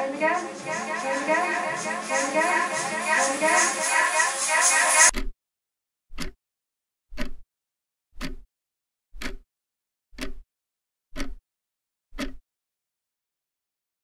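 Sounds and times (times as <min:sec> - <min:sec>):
clock ticking: 0:00.0 - 0:05.4, 0:06.1 - 0:06.4, 0:07.1 - 0:07.4, 0:08.2 - 0:08.5, 0:09.1 - 0:09.5, 0:10.1 - 0:10.5, 0:11.1 - 0:11.4, 0:12.1 - 0:12.4.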